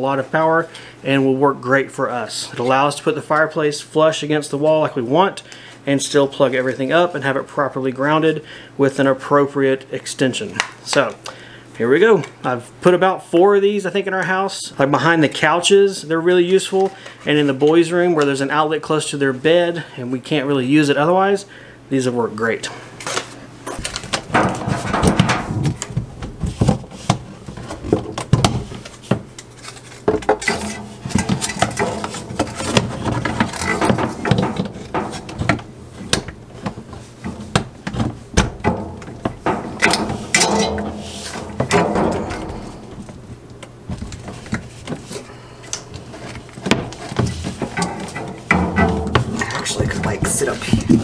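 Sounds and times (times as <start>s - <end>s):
power cords rustling: 23.0s - 51.0s.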